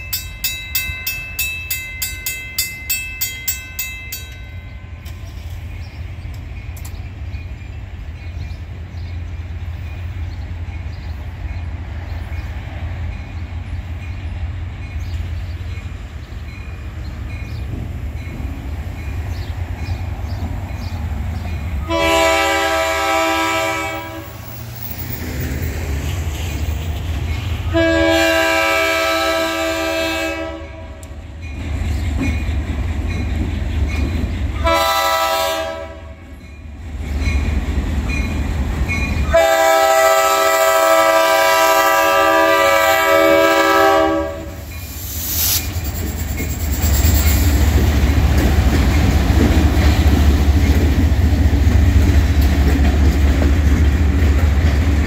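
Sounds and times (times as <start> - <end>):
diesel engines rumbling past: 17.7 - 29.5
locomotive air horn blasts: 21.8 - 24.4, 27.7 - 31.0, 34.6 - 36.2, 39.3 - 44.6.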